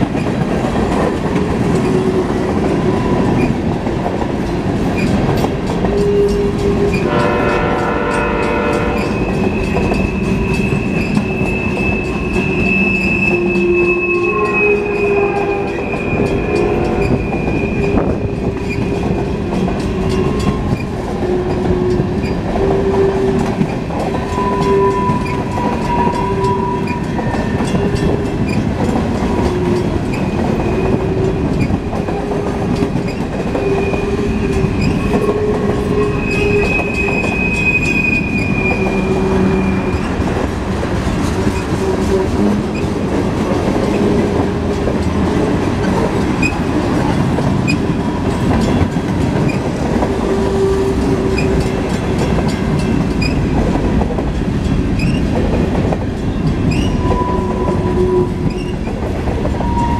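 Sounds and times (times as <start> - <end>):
train wheels rumbling on rails: 0.0 - 59.9
high wheel squeal: 8.8 - 19.1, 24.2 - 28.6, 33.1 - 40.2, 56.6 - 58.9.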